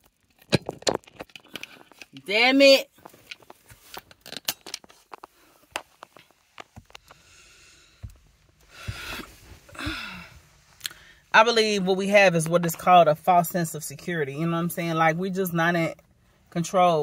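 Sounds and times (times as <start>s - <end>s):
phone handling clicks and rubs: 3.0s - 7.2s
soft breathing: 6.9s - 11.3s.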